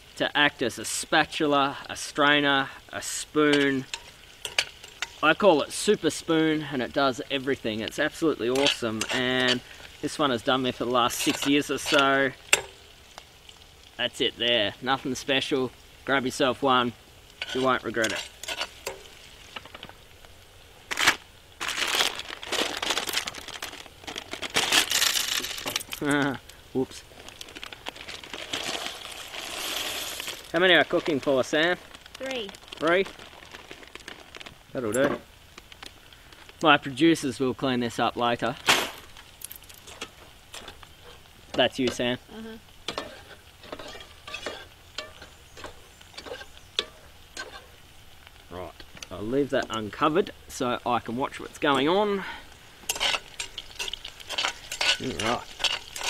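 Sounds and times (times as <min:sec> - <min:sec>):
metal spoon stirring in metal pot: 0:03.5 - 0:05.2, 0:08.5 - 0:10.0, 0:11.1 - 0:12.8, 0:17.3 - 0:19.6, 0:42.8 - 0:47.8, 0:52.8 - 0:56.0
plastic packet crinkling: 0:20.9 - 0:36.6, 0:52.9 - 0:56.0.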